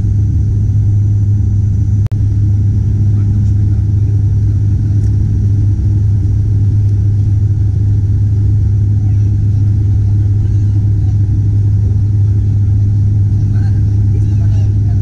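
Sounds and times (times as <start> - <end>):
propeller engines droning: 0.0 - 15.0.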